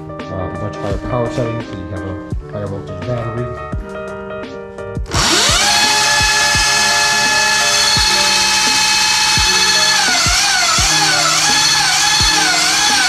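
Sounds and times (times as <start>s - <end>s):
electric motor whine: 5.1s - 13.0s.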